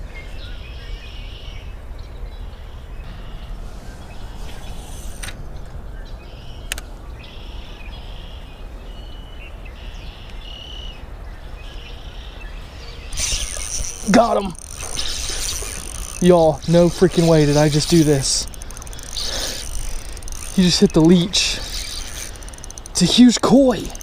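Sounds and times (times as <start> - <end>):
songbirds chirping: 0.0 - 24.0
steady low rumble: 2.2 - 8.6
sharp clicks: 6.6 - 6.9, 13.1 - 24.0.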